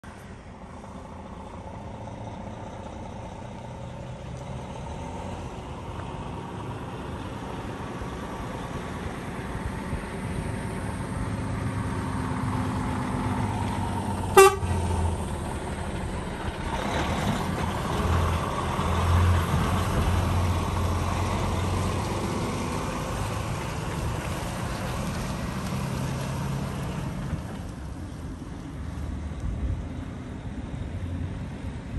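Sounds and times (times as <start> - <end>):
truck diesel engine running: 0.0 - 28.7
truck horn toot: 14.3 - 15.0.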